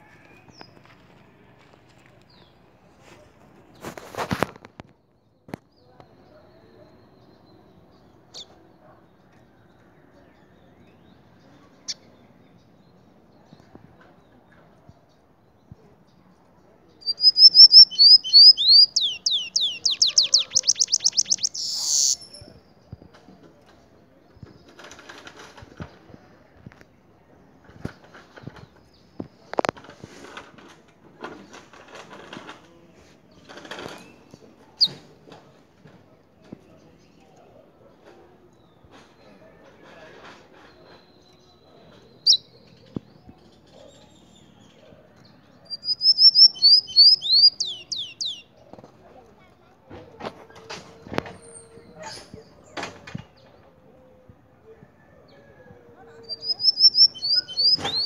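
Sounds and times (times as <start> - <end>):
thin bird chirps: 17.0 - 22.4, 41.0 - 42.8, 45.7 - 48.5, 56.3 - 58.0.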